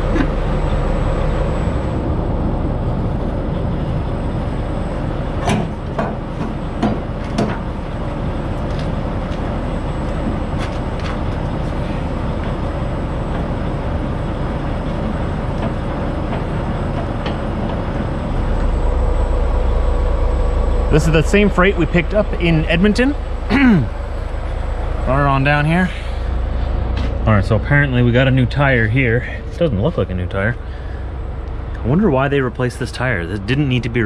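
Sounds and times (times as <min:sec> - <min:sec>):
diesel engine idling: 0:00.0 - 0:34.0
sharp clicks and knocks: 0:05.4 - 0:07.7.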